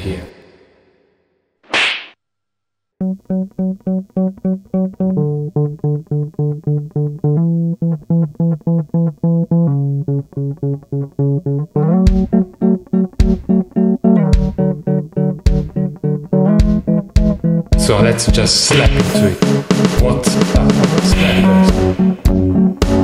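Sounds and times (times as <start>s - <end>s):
sharp percussive hits: 1.7s - 2.2s, 16.6s - 22.0s
bass guitar plucked notes: 3.0s - 23.0s.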